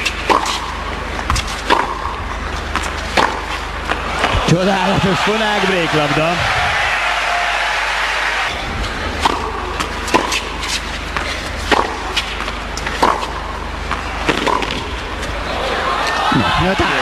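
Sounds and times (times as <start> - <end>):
tennis ball bouncing and struck: 0.0 - 4.5, 9.1 - 15.0
arena noise: 0.0 - 17.0.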